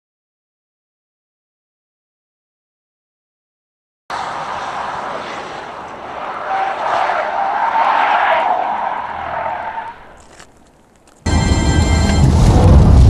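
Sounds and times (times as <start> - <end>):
tyres squealing and scrubbing: 4.1 - 11.2.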